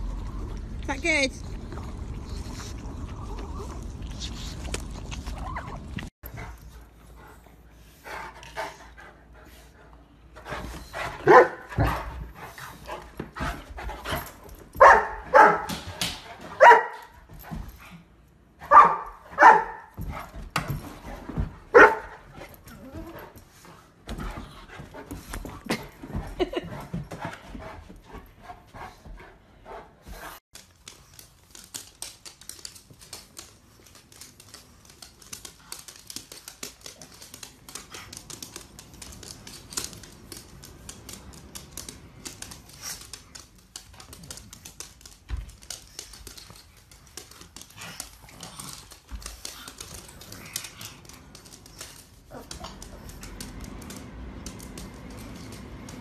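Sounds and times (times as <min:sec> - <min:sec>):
dog panting: 0:06.2 - 0:14.6, 0:22.1 - 0:30.4.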